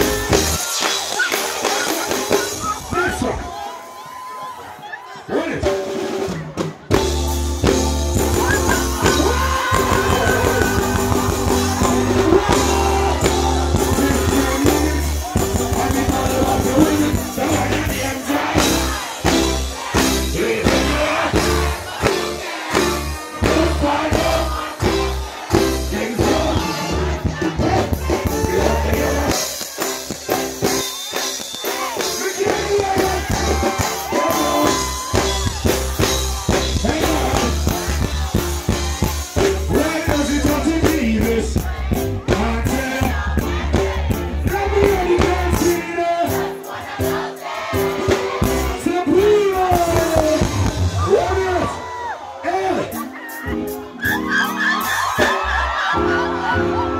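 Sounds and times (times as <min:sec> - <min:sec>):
crowd cheering: 0:00.0 - 0:56.9
reggae band playing: 0:00.0 - 0:56.9
person singing: 0:08.2 - 0:19.0, 0:22.9 - 0:29.6, 0:31.8 - 0:46.5.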